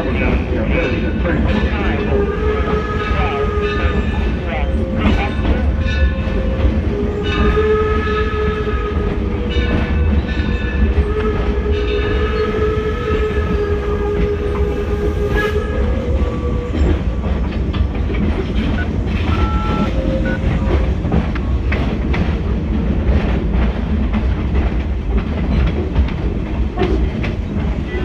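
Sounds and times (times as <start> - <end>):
moving train rumble: 0.0 - 28.0
steam locomotive whistle blasts: 7.1 - 9.1, 11.1 - 16.0.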